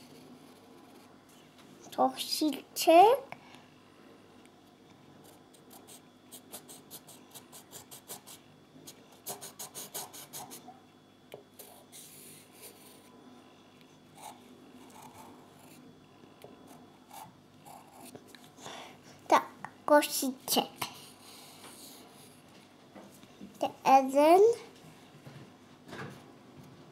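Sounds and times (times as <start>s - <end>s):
pencil scribbling on paper: 9.2s - 10.6s.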